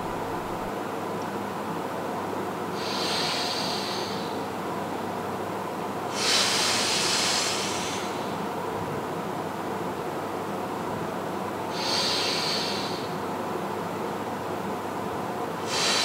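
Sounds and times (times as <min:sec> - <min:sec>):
man's forceful hissing breaths: 0:02.7 - 0:04.6, 0:06.1 - 0:08.6, 0:11.6 - 0:13.4, 0:15.6 - 0:16.0.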